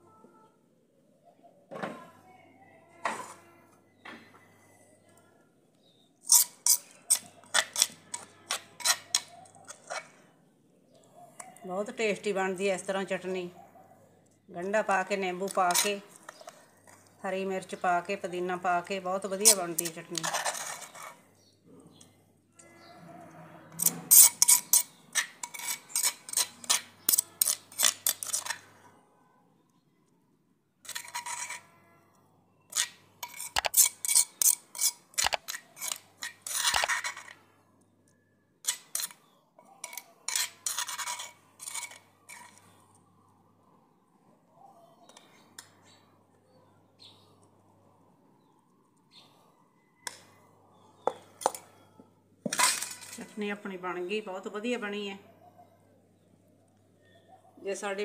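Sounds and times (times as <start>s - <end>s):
spoon scraping a terracotta pot: 3.0s - 4.0s, 5.8s - 13.4s, 14.2s - 28.9s, 30.8s - 37.6s, 38.6s - 43.1s.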